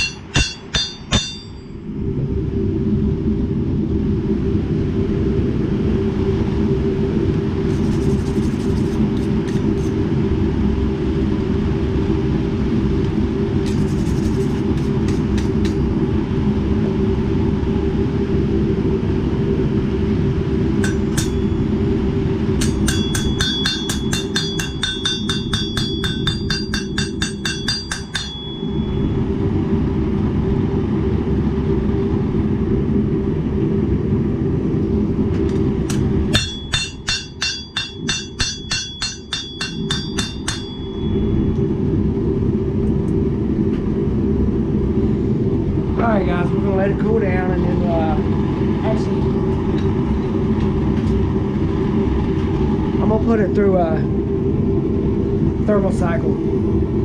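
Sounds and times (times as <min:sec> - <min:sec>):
hammer striking steel on anvil: 0:00.0 - 0:01.8, 0:20.8 - 0:21.5, 0:22.6 - 0:28.9, 0:35.8 - 0:41.2
steady low roar: 0:00.0 - 0:57.0.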